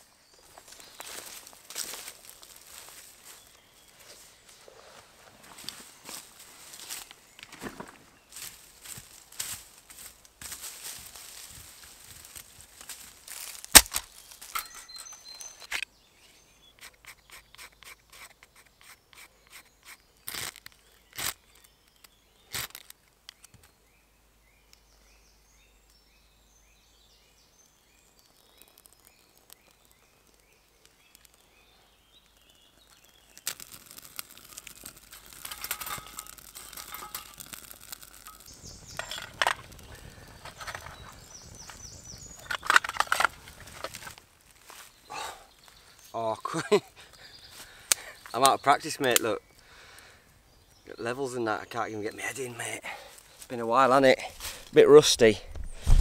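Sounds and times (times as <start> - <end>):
faint bird chirping: 0.0 - 5.0, 14.1 - 22.6, 23.3 - 33.5, 35.4 - 56.0
rustling of leaf litter: 0.0 - 15.7, 27.7 - 49.1, 52.2 - 56.0
knife scraping birch bark: 16.7 - 21.4, 32.9 - 38.5.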